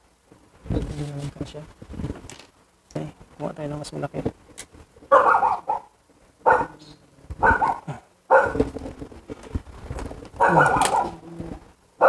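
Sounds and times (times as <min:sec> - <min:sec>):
dog barking: 0:05.1 - 0:06.8, 0:07.4 - 0:08.7, 0:10.4 - 0:11.2.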